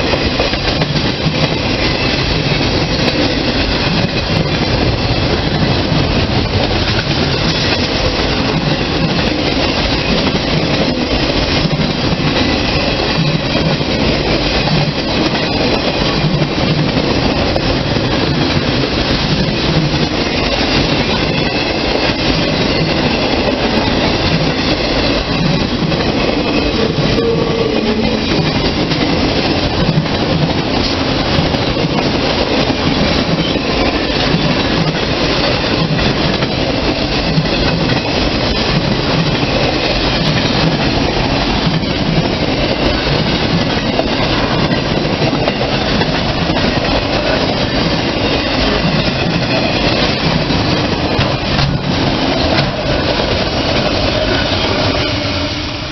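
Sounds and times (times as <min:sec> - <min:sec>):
freight train wheels rumbling on rail: 0:00.0 - 0:55.9.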